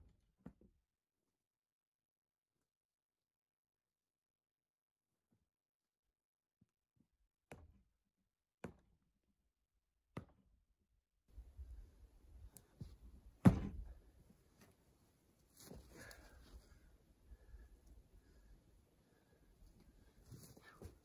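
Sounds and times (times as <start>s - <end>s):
sharp knocks of hard objects: 13.4s - 13.8s
loud heavy thump: 13.4s - 13.9s
shuffling: 13.8s - 18.0s, 19.0s - 21.0s.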